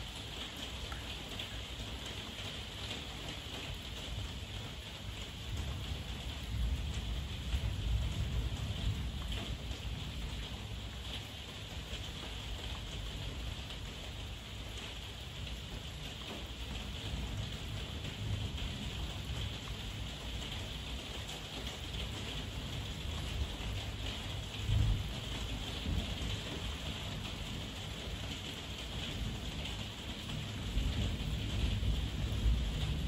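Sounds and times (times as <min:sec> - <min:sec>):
heavy rain: 0:00.0 - 0:33.0
rolling thunder: 0:30.2 - 0:33.0.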